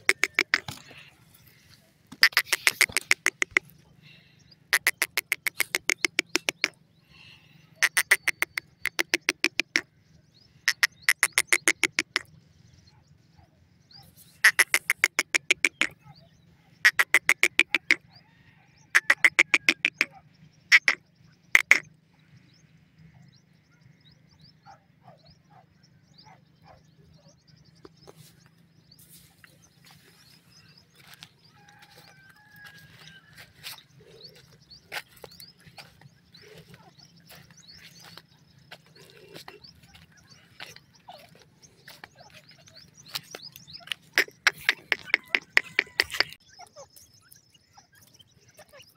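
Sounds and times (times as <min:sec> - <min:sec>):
bird rattling call: 0:00.0 - 0:01.1, 0:02.2 - 0:03.8, 0:04.7 - 0:06.8, 0:07.8 - 0:09.8, 0:10.7 - 0:12.2, 0:14.3 - 0:15.9, 0:16.8 - 0:18.0, 0:18.8 - 0:20.1, 0:20.7 - 0:21.9, 0:38.9 - 0:46.6.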